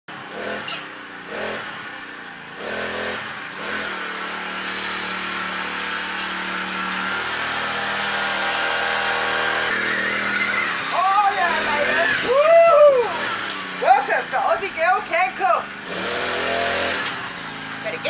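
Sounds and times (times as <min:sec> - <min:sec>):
small engine revving: 0:00.1 - 0:18.0.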